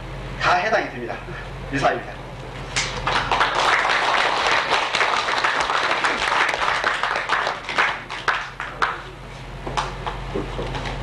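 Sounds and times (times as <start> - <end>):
congregation clapping: 2.8 - 9.1.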